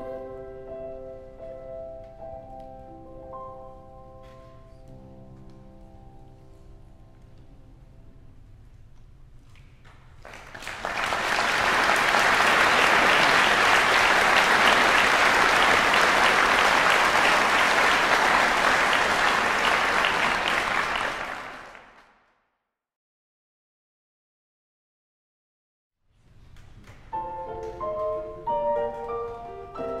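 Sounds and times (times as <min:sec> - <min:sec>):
audience applauding: 0:10.2 - 0:22.2.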